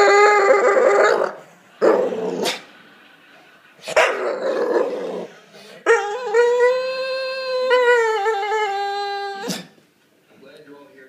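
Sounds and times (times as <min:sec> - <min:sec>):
dog howling: 0:00.0 - 0:02.6, 0:04.0 - 0:09.8
dog growling: 0:00.0 - 0:02.7, 0:03.9 - 0:09.8.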